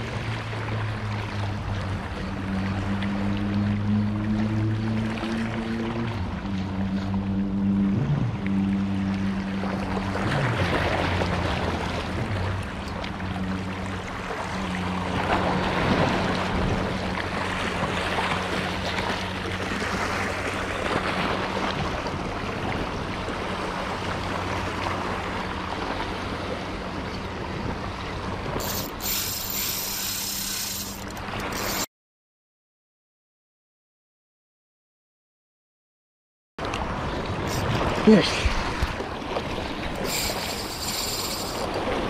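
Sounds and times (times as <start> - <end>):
sea noise: 0.0 - 31.9, 36.6 - 42.0
fishing reel whirring: 28.3 - 31.9, 37.4 - 38.0, 39.8 - 42.0.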